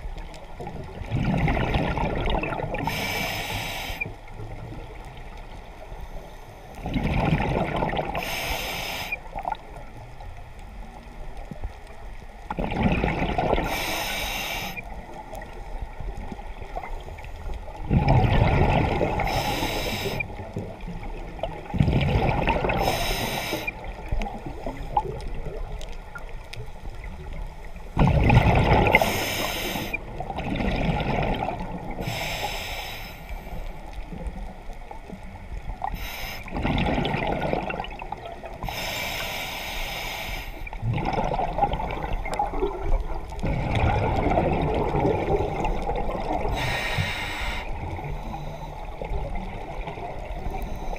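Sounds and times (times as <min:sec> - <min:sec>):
bubbles burbling: 0:00.6 - 0:03.0, 0:06.8 - 0:08.2, 0:12.5 - 0:13.8, 0:17.7 - 0:19.3, 0:20.2 - 0:22.9, 0:28.0 - 0:29.2, 0:30.0 - 0:32.0, 0:36.5 - 0:38.6, 0:40.7 - 0:46.7, 0:49.0 - 0:50.6
underwater hush: 0:01.0 - 0:04.3, 0:12.5 - 0:15.5, 0:17.8 - 0:26.2, 0:28.0 - 0:33.7, 0:35.8 - 0:50.9.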